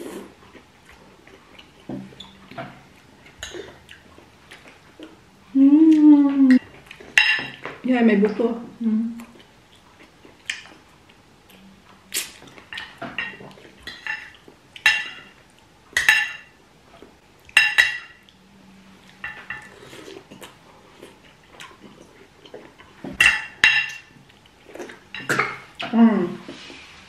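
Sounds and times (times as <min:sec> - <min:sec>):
cutlery clinking on plates: 0:07.1 - 0:07.8, 0:12.7 - 0:15.4, 0:16.0 - 0:16.5, 0:17.5 - 0:18.2, 0:23.0 - 0:24.1.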